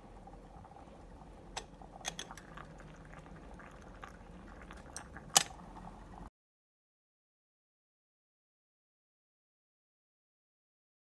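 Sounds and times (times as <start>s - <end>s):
moka pot sputtering: 0.0s - 6.3s.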